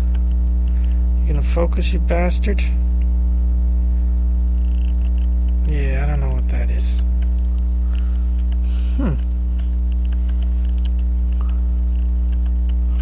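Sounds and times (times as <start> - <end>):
electrical mains hum: 0.0 - 13.0
faint handling clicks: 9.5 - 12.8.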